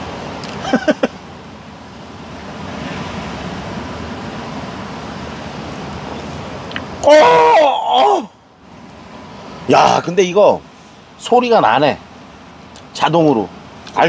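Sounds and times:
surf: 0.0s - 14.0s
wind: 0.0s - 14.0s
men exclaiming ahh: 7.0s - 8.4s.

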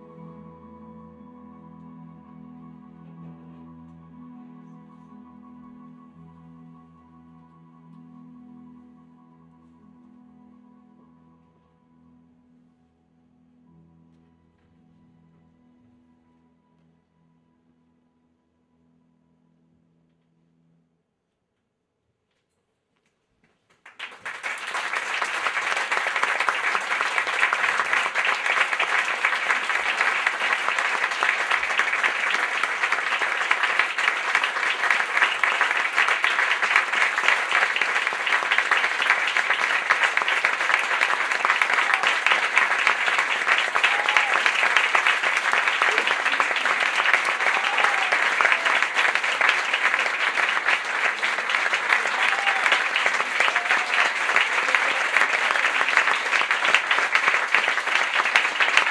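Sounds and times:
audience applauding: 23.7s - 58.9s.

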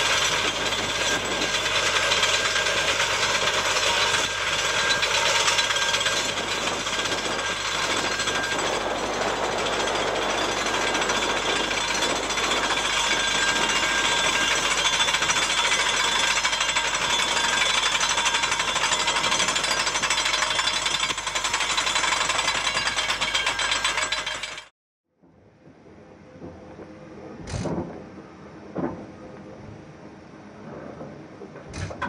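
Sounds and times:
steam locomotive chuffing: 0.0s - 24.7s.

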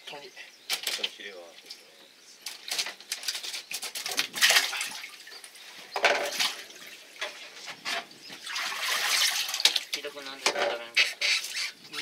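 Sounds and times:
water splashing and gushing: 2.7s - 12.0s.

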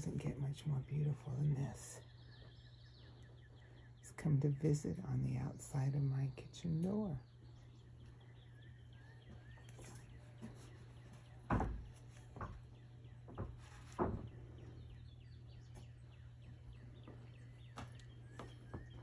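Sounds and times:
faint bird chirps: 0.0s - 19.0s
steady low hum: 0.0s - 19.0s
soft bumps: 9.2s - 19.0s.

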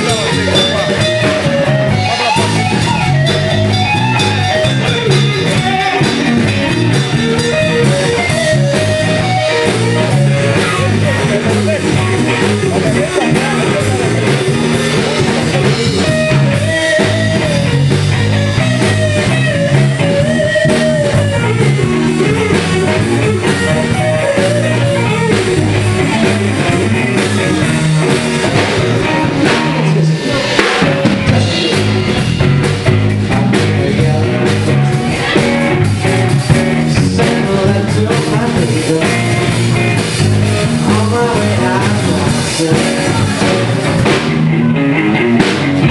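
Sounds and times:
drum kit: 0.0s - 45.9s
electric guitar: 0.0s - 45.9s
person singing: 33.3s - 44.1s.

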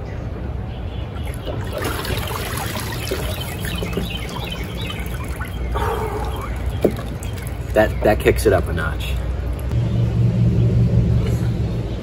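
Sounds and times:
birds chirping: 0.0s - 12.0s
water splashing and streaming: 1.2s - 9.4s.

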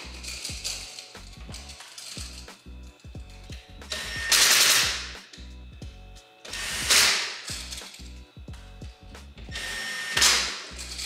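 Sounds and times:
music with bass beat: 0.0s - 11.0s
cordless drill driving screws: 3.9s - 5.1s, 6.5s - 7.9s, 9.5s - 11.0s.

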